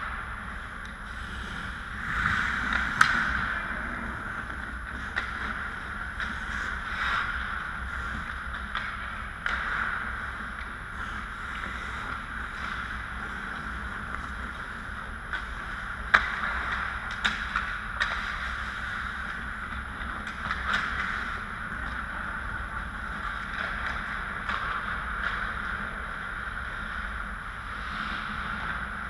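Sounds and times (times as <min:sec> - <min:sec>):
hockey sticks and puck clacking: 0:00.0 - 0:29.0
skate blades scraping ice: 0:00.0 - 0:29.0.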